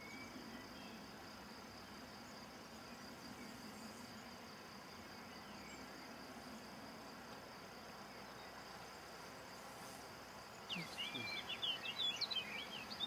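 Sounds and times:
crickets trilling: 0.0s - 13.0s
low hiss: 0.0s - 13.0s.

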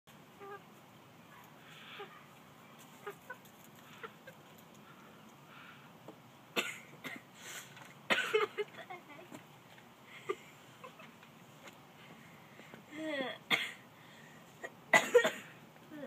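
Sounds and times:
hen clucking: 0.3s - 0.8s, 1.4s - 5.4s.

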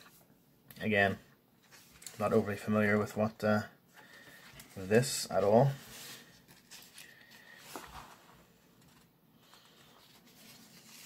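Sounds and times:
paper rustling: 1.6s - 2.5s, 4.0s - 11.0s.

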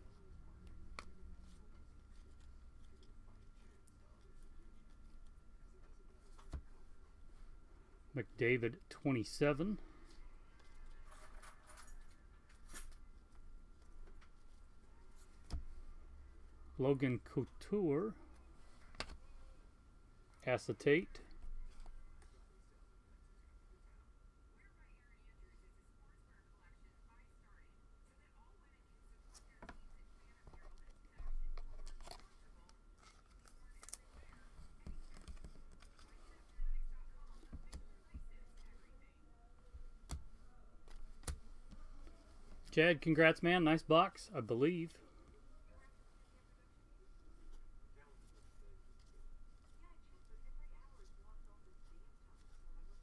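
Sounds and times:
cards rustling and clicking: 0.6s - 6.8s, 18.3s - 19.3s, 30.4s - 38.8s, 39.8s - 44.1s.

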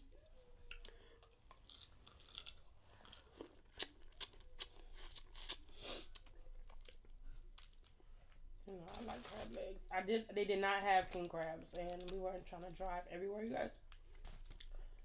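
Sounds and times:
wet chewing and lip smacking: 0.4s - 8.4s
crab shells cracking: 0.7s - 4.8s.

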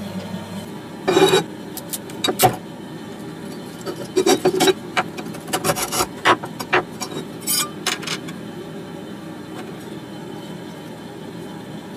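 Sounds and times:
metal scraping: 5.4s - 8.3s.

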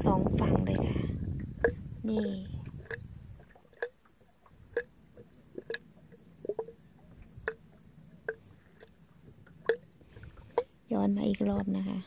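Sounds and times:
waves slapping boat hull: 0.0s - 12.0s.

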